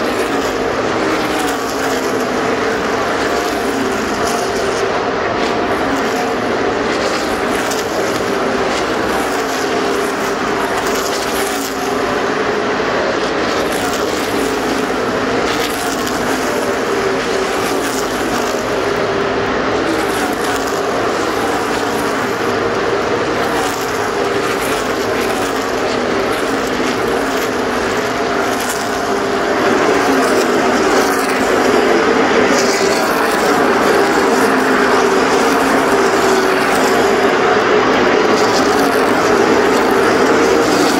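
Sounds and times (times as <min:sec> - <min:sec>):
race car engines passing: 0:00.0 - 0:40.9.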